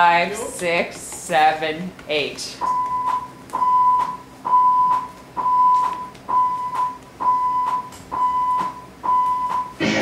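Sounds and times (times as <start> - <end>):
high electronic beeps: 2.6 - 9.8.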